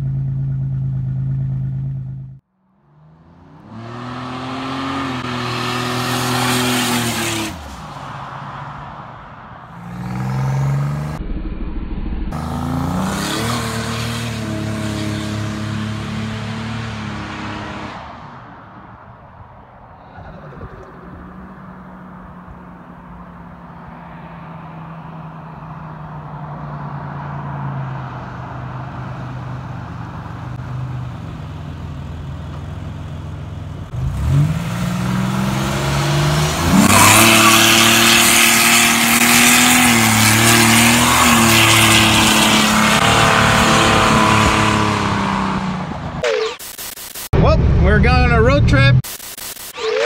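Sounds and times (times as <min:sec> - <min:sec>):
car exhaust drone: 0:00.0 - 0:02.4.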